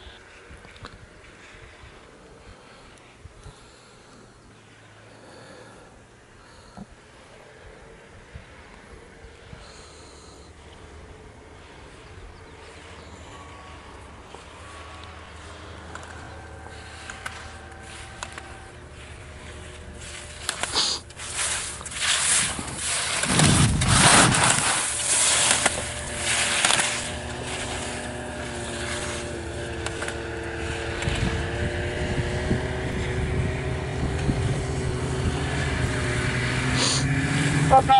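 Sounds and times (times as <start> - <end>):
motor humming: 2.0 - 37.9
skis scraping on snow: 11.4 - 37.9.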